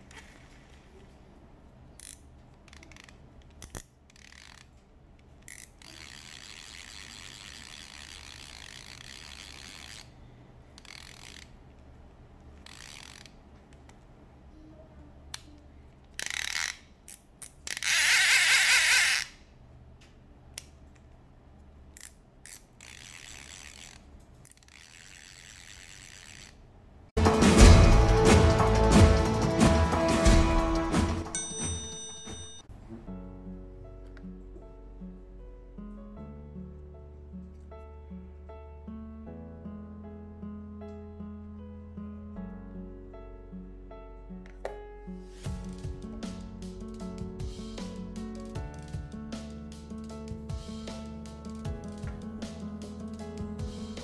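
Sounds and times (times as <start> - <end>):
fishing reel clicks: 2.0 - 4.8, 5.4 - 10.2, 10.8 - 11.6, 12.6 - 13.4, 16.2 - 19.4, 22.0 - 26.6
reel ratcheting: 2.0 - 4.8, 5.4 - 10.2, 10.8 - 11.6, 12.6 - 13.4, 16.2 - 19.4, 22.0 - 26.6.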